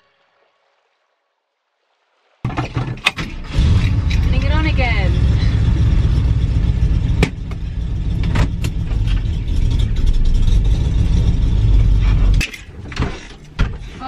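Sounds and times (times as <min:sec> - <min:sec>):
car engine running: 0:03.4 - 0:13.0.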